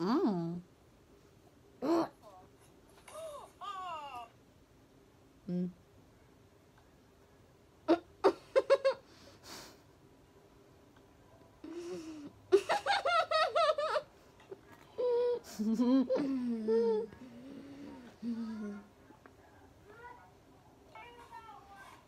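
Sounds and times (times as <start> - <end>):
girls giggling and laughing: 12.5 - 14.1.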